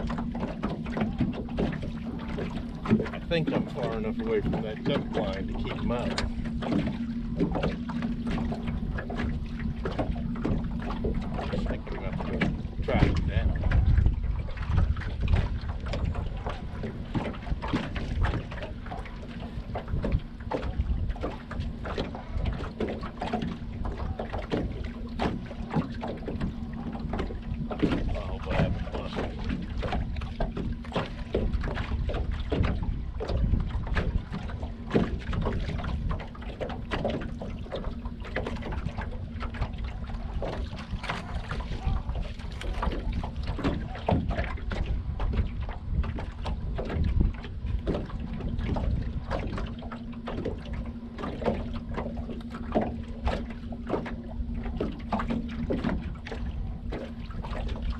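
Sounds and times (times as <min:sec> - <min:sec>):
steady low hum: 0:00.0 - 0:57.9
water knocking against hull: 0:00.0 - 0:57.9
wind buffeting microphone: 0:00.0 - 0:57.9.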